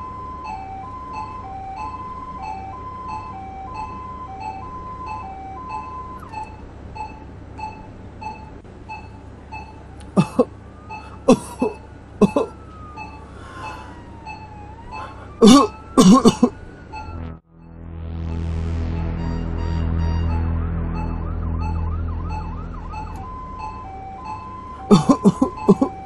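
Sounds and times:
patient monitor beeping: 0:00.0 - 0:17.4, 0:20.3 - 0:26.0
person coughing: 0:10.2 - 0:10.5, 0:11.2 - 0:12.6, 0:15.4 - 0:16.6, 0:24.9 - 0:26.0.

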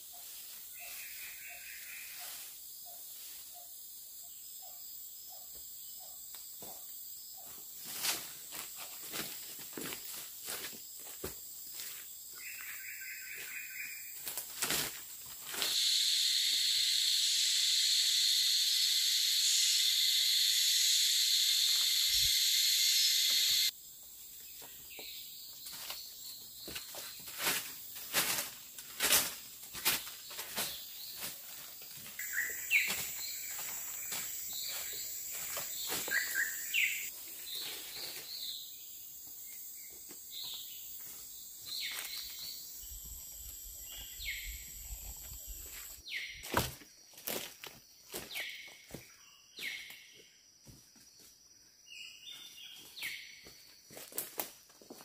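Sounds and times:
footsteps crunching dry leaves: 0:07.8 - 0:16.0, 0:25.6 - 0:38.4
bird chirps: 0:15.6 - 0:23.7, 0:32.2 - 0:38.8
loud high-pitched hiss: 0:15.6 - 0:23.7.

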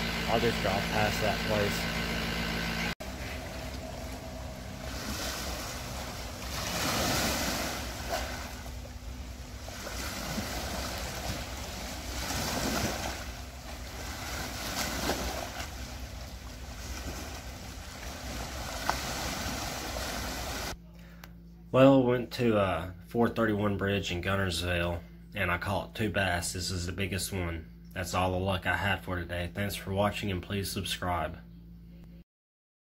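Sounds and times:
lake waves splashing on rocks: 0:03.7 - 0:20.8.

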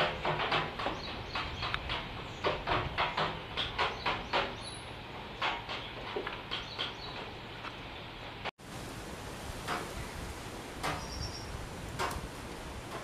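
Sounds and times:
birds calling in short notes: 0:11.0 - 0:11.6.

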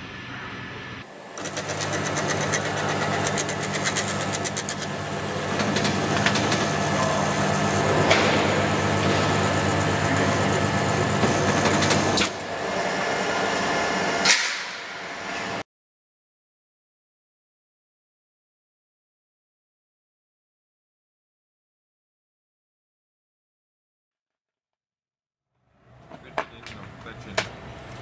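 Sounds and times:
welding machine electrical hum: 0:00.0 - 0:15.6.

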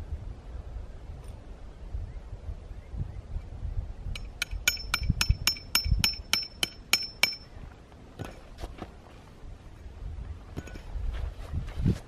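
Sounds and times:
hammer striking tent stake: 0:04.2 - 0:07.5.

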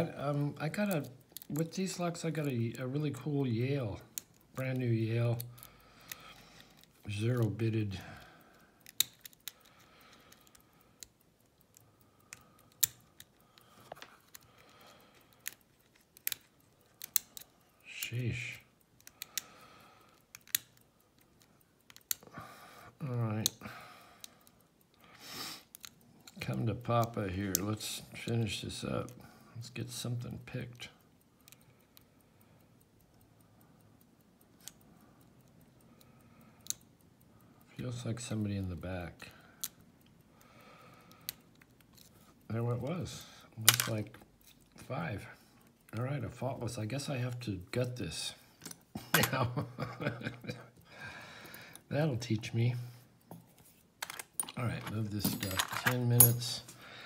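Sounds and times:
lock pick metallic clicks: 0:00.8 - 0:18.2, 0:18.8 - 0:19.5, 0:20.1 - 0:22.3, 0:25.6 - 0:28.6, 0:36.6 - 0:37.0, 0:43.6 - 0:44.9, 0:48.6 - 0:50.7, 0:53.2 - 0:56.8
lock pins setting clicks: 0:08.8 - 0:11.2, 0:20.2 - 0:21.2, 0:53.9 - 0:56.8
lock pick clicking in lock: 0:08.8 - 0:14.5, 0:15.2 - 0:17.5, 0:20.2 - 0:20.8, 0:21.8 - 0:22.2, 0:54.0 - 0:56.4.

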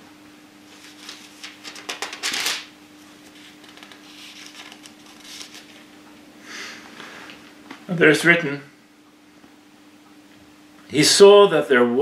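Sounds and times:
faint steady hum: 0:00.0 - 0:12.0
thin pages turning: 0:00.7 - 0:05.9.

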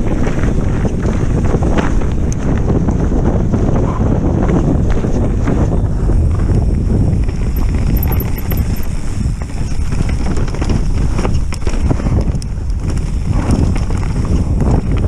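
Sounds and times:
wind on microphone: 0:00.0 - 0:15.0
camera and bike rattling: 0:04.4 - 0:15.0.

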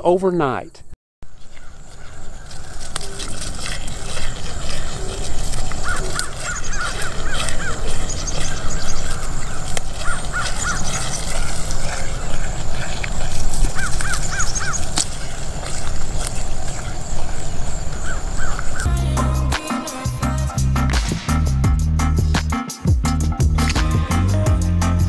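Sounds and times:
birds calling: 0:00.2 - 0:21.5
steady low rumble: 0:18.9 - 0:25.0.

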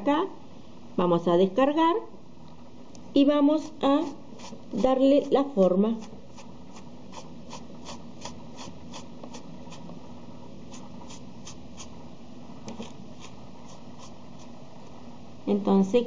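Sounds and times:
sponge dabbing on foam: 0:03.6 - 0:09.9, 0:10.7 - 0:11.9, 0:13.2 - 0:14.5.

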